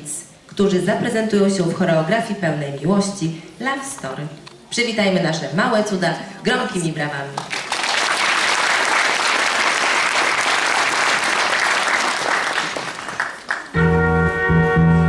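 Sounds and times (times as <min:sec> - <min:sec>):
audience applauding: 0:07.4 - 0:13.8
recorded music with chords: 0:13.8 - 0:15.0.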